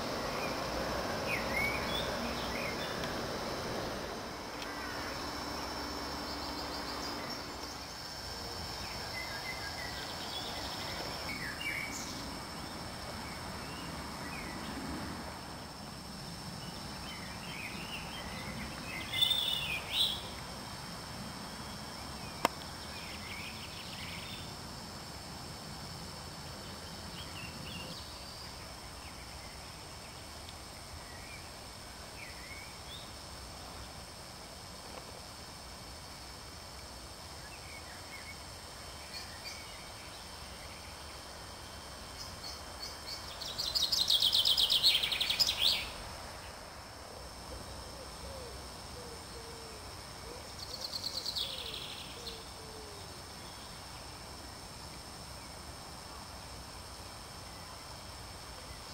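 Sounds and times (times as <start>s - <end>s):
songbirds singing and calling: 0.0s - 14.9s, 16.6s - 20.5s, 21.6s - 24.6s, 26.5s - 34.0s, 37.4s - 41.3s, 42.1s - 46.6s, 50.2s - 54.1s.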